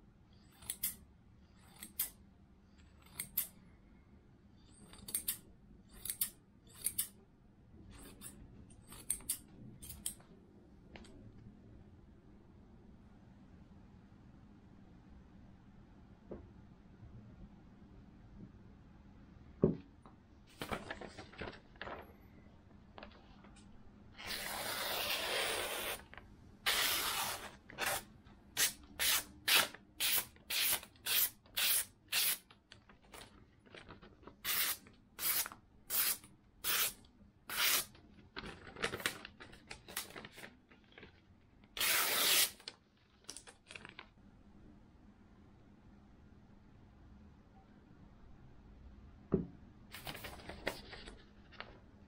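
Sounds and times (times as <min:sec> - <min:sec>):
knife slicing paper: 0:26.7 - 0:32.4.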